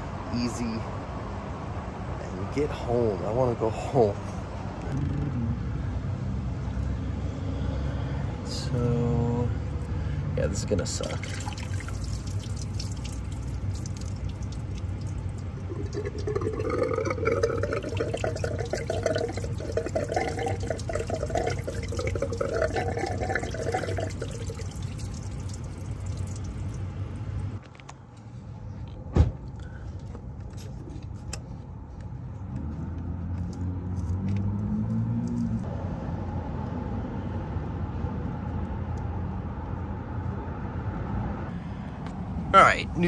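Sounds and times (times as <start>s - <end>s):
coolant pouring and splashing: 11.0s - 27.6s.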